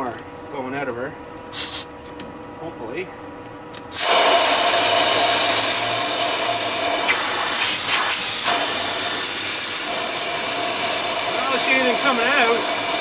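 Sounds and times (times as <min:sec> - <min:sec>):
compressed air rushing: 0:03.9 - 0:13.0.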